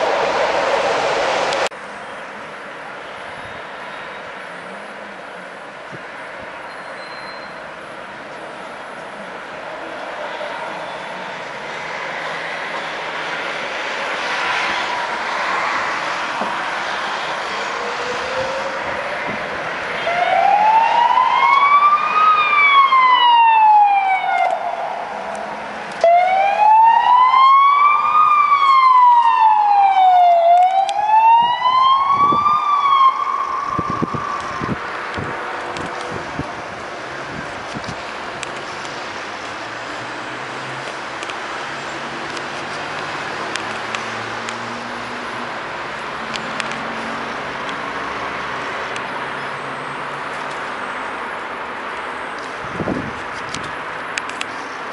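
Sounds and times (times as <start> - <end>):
street traffic: 0.0 - 54.9
ambulance siren wailing: 16.7 - 36.5.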